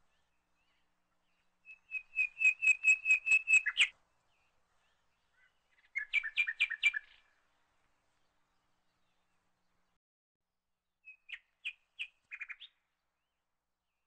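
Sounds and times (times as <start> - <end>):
bird chirping: 0.0 - 9.8, 11.0 - 14.0.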